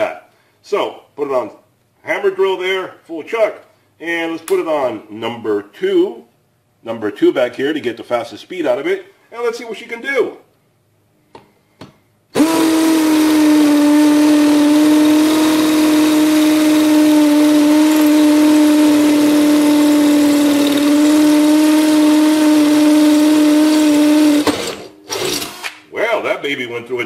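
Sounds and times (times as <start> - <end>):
hammer drill boring into brick: 12.4 - 25.8.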